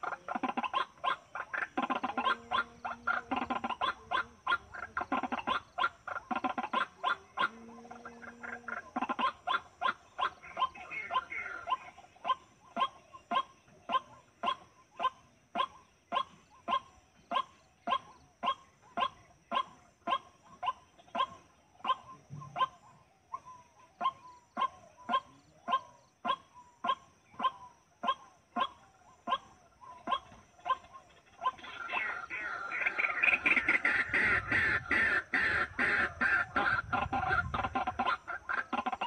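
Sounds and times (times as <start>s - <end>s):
waterhen calling: 0.0s - 14.6s, 23.4s - 39.0s.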